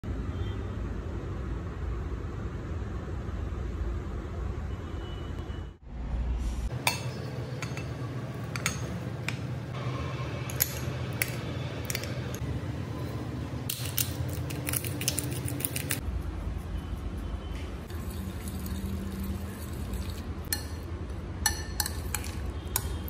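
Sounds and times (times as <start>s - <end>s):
metal spoon clinking on bowls: 6.8s - 9.4s, 10.5s - 12.4s, 18.0s - 23.0s.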